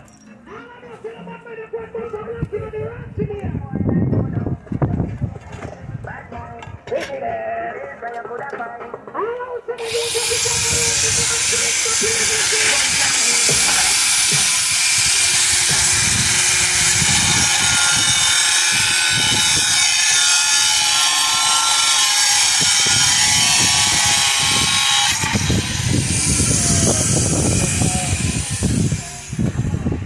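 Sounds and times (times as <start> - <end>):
power cutting tool whining: 9.8 - 30.0.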